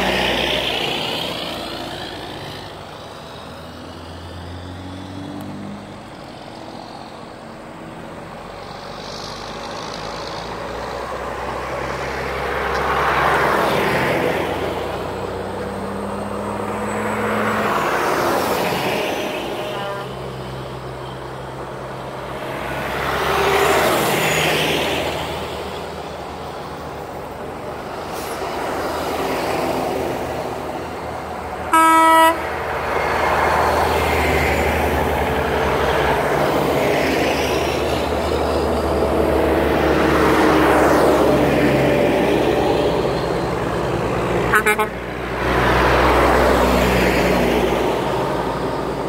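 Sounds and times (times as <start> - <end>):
diesel trucks passing: 0.0 - 49.0
truck horn blast: 19.4 - 20.2, 31.7 - 32.6, 44.5 - 45.1
faint short horn toot: 31.8 - 32.4.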